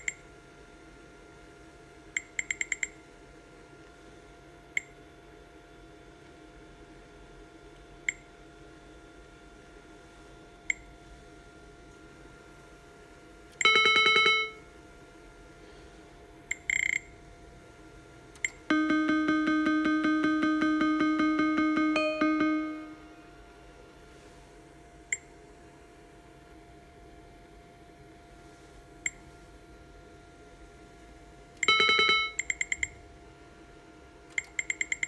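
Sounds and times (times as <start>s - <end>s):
electronic tone with rapid ticking: 0.0s - 0.2s, 2.2s - 3.0s, 13.6s - 14.6s, 16.5s - 17.1s, 18.4s - 23.2s, 31.6s - 33.0s, 34.3s - 35.0s
electronic chime: 13.6s - 14.6s, 18.7s - 23.2s, 31.6s - 32.8s
touchscreen button beeps: 18.4s - 23.0s, 31.6s - 32.9s.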